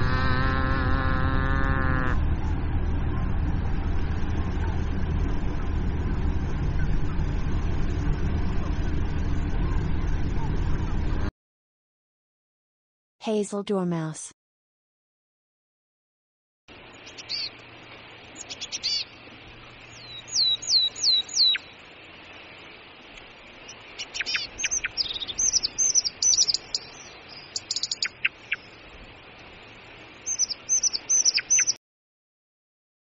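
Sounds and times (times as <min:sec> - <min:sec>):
steady hiss: 0:16.7 - 0:31.2
dormouse chirps and squeaks: 0:17.2 - 0:17.5, 0:24.0 - 0:26.9, 0:30.3 - 0:31.8.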